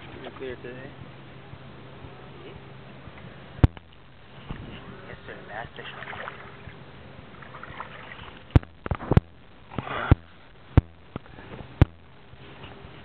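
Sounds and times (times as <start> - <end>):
steady low hum: 0.0 - 13.0
sharp knocks: 3.6 - 4.7, 8.6 - 12.1.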